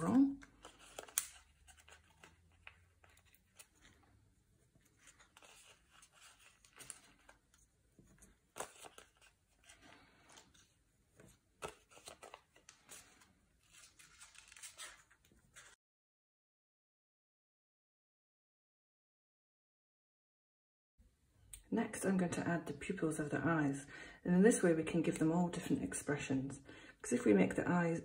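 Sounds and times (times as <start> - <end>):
sticky dots peeled crackling: 0.0 - 4.2.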